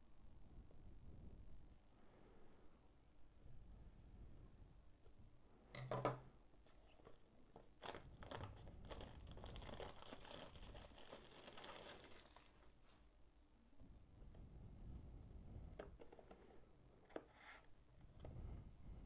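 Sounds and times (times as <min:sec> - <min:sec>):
plastic film crinkling and tearing: 0:07.8 - 0:13.0
plastic wrap ripping: 0:07.8 - 0:13.0.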